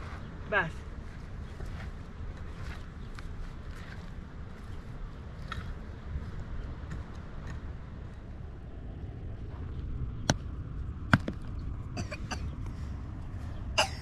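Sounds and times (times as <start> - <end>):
hoe blade striking stony soil: 11.1 - 11.4
stones knocking together: 11.1 - 11.6.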